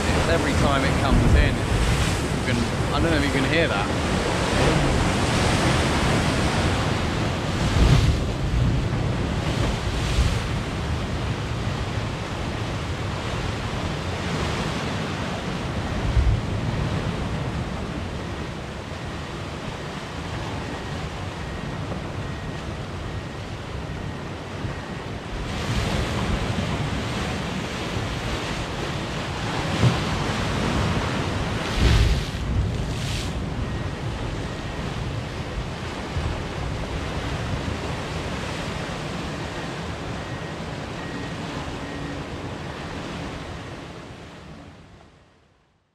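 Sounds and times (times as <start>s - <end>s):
waves washing against rocks: 0.0s - 18.0s, 25.4s - 34.0s
wind rumble on microphone: 0.0s - 44.9s.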